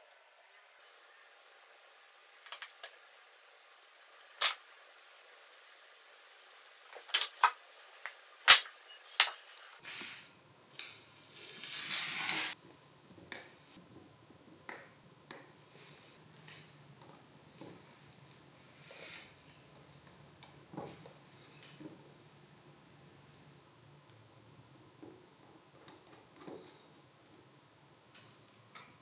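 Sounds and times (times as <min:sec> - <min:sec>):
scraping rustle: 0:11.2 - 0:12.6.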